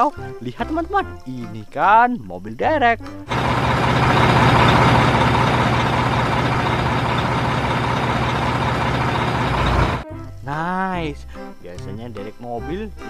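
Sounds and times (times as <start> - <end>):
diesel crane engine running: 3.3 - 10.0.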